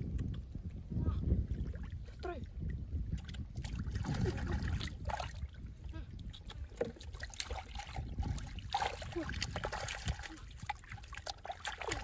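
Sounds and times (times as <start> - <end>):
hands splashing in muddy water: 6.3 - 12.0.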